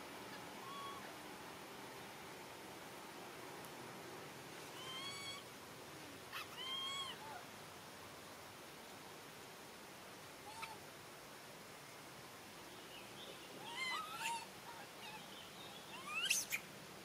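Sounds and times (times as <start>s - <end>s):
baby macaque crying: 0.6s - 1.1s, 4.8s - 5.4s, 6.4s - 7.2s, 13.6s - 15.1s.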